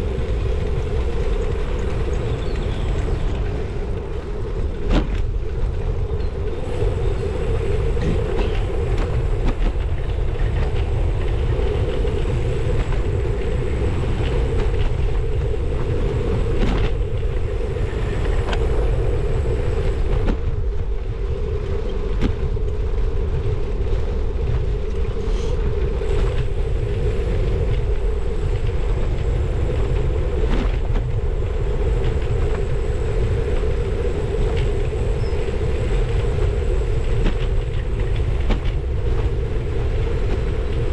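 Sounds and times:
tyres rolling on tarmac: 0.0s - 40.9s
wind on microphone: 0.0s - 40.9s
bike clicks and rattles: 21.8s - 40.9s.

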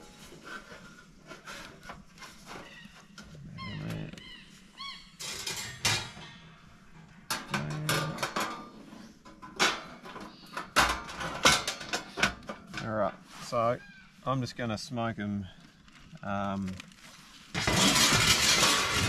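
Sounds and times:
metal grill racks clattering: 5.2s - 13.0s, 17.6s - 19.0s.

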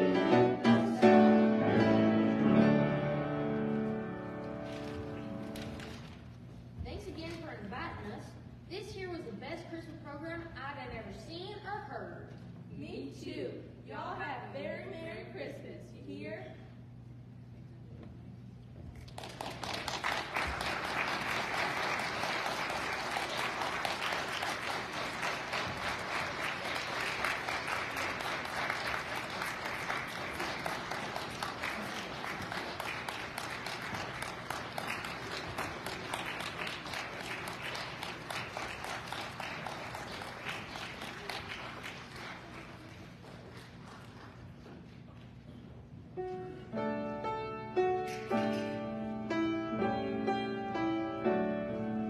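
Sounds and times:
congregation applauding: 3.8s - 6.3s, 19.0s - 44.5s.

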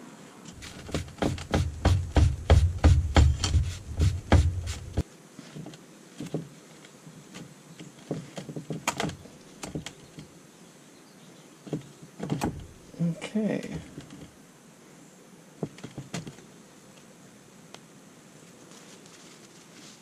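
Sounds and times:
regular knocks: 0.6s - 5.0s.

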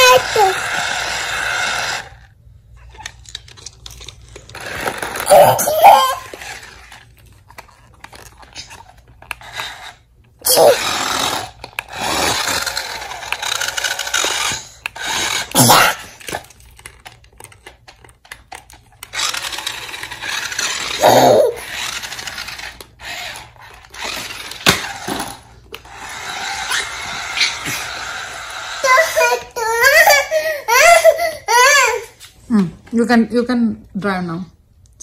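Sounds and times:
toddler crying out: 0.0s - 0.7s, 5.2s - 6.5s, 10.4s - 11.0s, 21.0s - 21.7s, 28.8s - 32.2s
toy car motors whirring: 0.0s - 32.1s.

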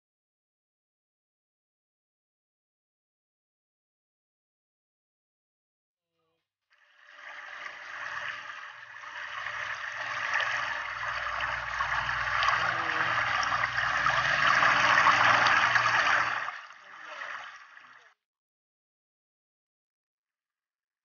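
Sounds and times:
hose water splashing: 6.8s - 18.1s.

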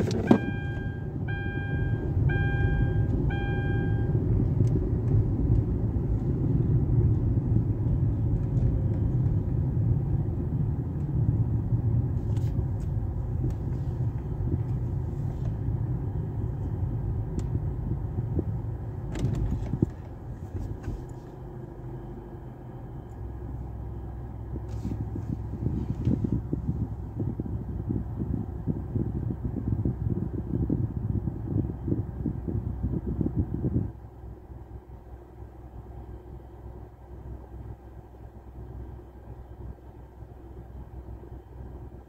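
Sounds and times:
car engine and tyre rumble: 0.0s - 42.0s.

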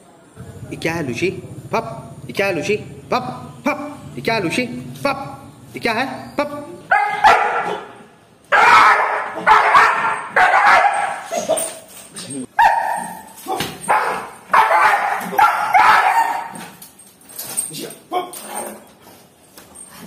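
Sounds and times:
dog yelping: 6.1s - 11.8s, 12.5s - 16.8s
dog barking: 6.9s - 11.7s, 12.6s - 16.8s.

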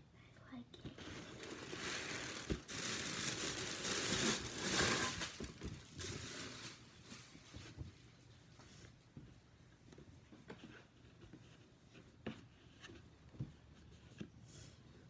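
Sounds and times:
gift wrapping crinkling: 0.9s - 7.5s.

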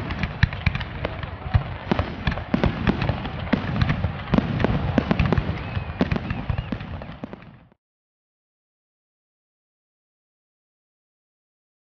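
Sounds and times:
fireworks bangs and crackles: 0.0s - 7.8s
fireworks whistles: 0.0s - 7.8s.

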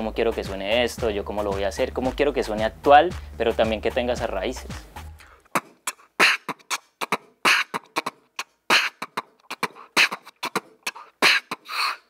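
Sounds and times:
beatboxing: 4.6s - 12.0s.

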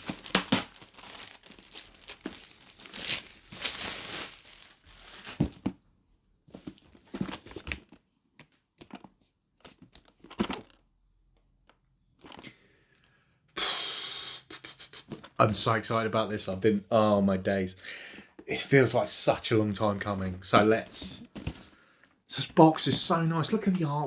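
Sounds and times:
cellophane crinkling and tearing: 0.0s - 5.6s.

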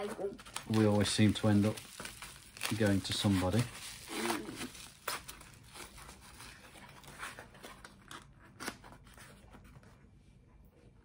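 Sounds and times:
cardboard being torn open: 0.0s - 9.3s
bubble wrap crinkling: 0.0s - 9.6s.

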